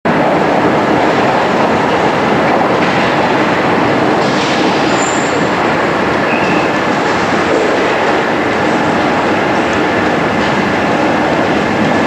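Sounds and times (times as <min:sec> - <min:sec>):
train wheels rumbling on rails: 0:00.1 - 0:12.0
high wheel squeal: 0:04.8 - 0:05.5, 0:06.2 - 0:06.8.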